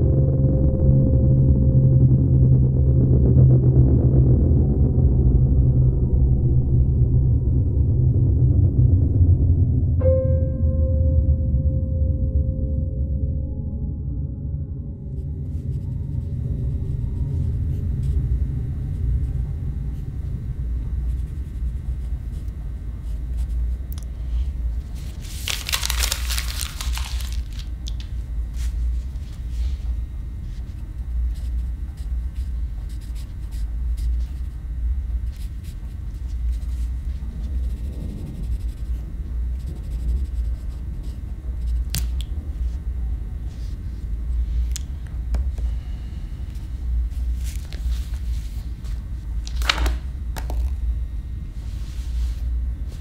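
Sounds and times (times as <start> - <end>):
low rumbling drone: 0.0 - 53.0
paper rasping: 25.0 - 27.7
pencil scratching on paper: 31.3 - 34.6, 35.3 - 41.9.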